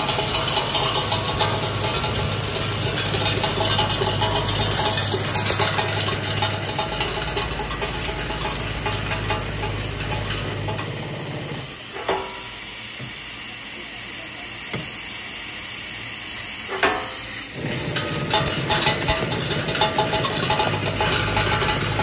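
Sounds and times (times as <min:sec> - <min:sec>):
rapid clicking of machine parts: 0:00.0 - 0:11.4, 0:17.6 - 0:22.0
machine hum: 0:00.0 - 0:11.8, 0:17.5 - 0:22.0.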